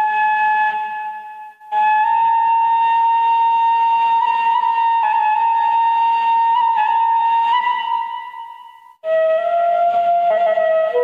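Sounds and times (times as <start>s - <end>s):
bamboo flute long note: 0.0s - 11.0s.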